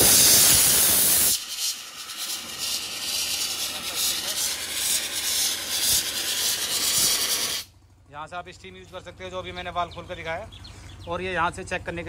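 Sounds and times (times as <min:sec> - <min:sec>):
steam hissing from valve: 0:00.0 - 0:07.7.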